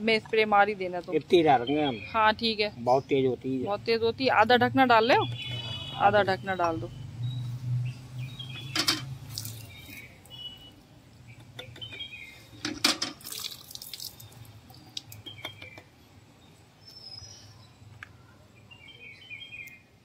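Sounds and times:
liquid pouring and sloshing: 8.8s - 10.1s, 12.7s - 15.2s.

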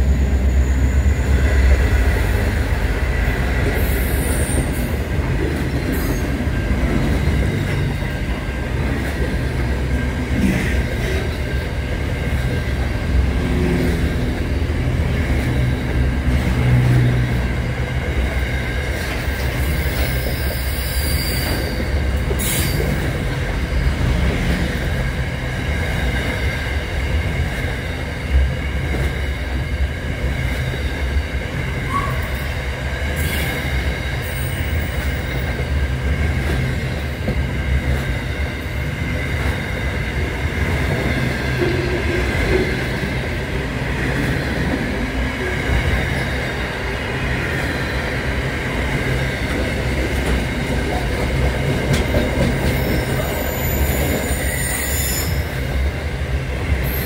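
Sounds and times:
train wheels rumbling on rail: 0.0s - 57.0s
high-pitched wheel squeal: 19.8s - 22.8s, 52.7s - 55.5s.

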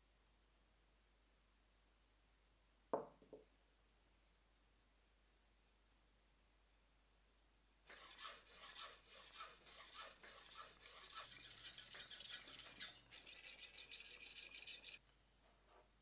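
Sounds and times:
knife rasping on whetstone: 7.9s - 15.0s.

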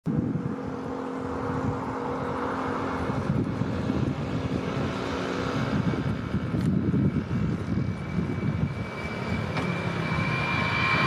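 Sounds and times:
jet engines at takeoff: 0.1s - 11.0s.

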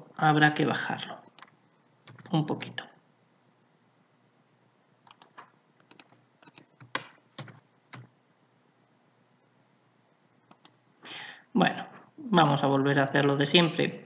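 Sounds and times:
computer keyboard keys tapping: 1.2s - 2.8s, 5.0s - 8.1s, 10.4s - 10.8s.

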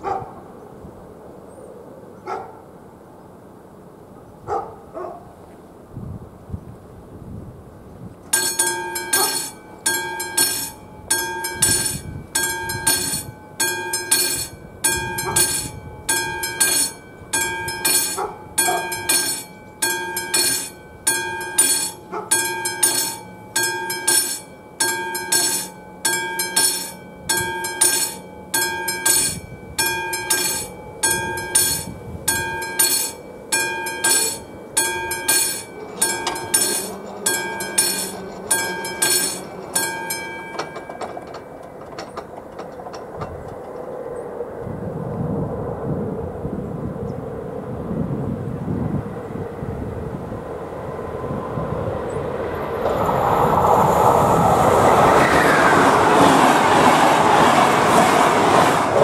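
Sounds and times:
level crossing warning bell: 8.3s - 44.0s.

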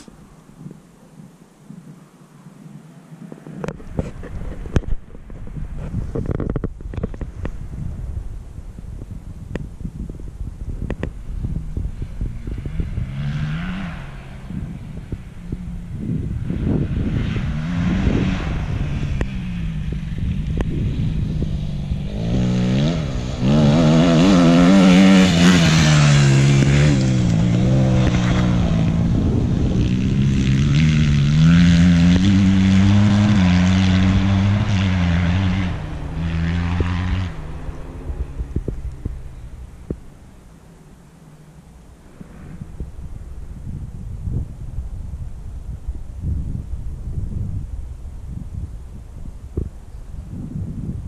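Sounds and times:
dirt bike engine revving: 12.2s - 15.1s, 16.0s - 39.0s.

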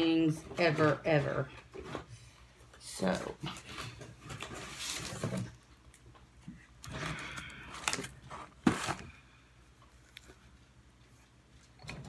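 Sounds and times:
cardboard box rustling and scraping: 8.0s - 9.1s.

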